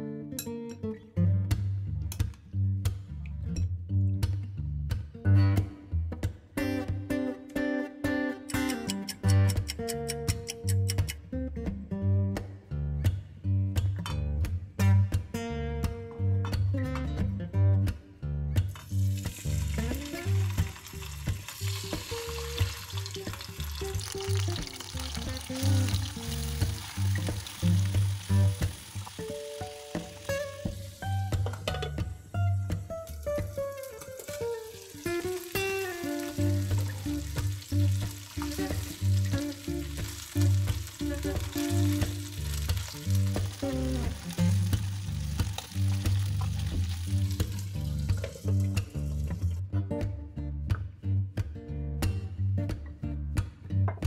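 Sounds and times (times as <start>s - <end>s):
background music with bass line: 0.0s - 54.0s
chicken sizzling in frying pan: 18.8s - 31.5s, 33.1s - 48.6s.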